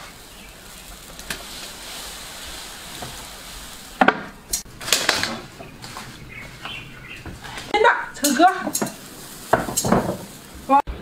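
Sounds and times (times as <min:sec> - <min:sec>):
water boiling: 0:00.0 - 0:11.0
wood and crockery clattering: 0:04.0 - 0:10.4.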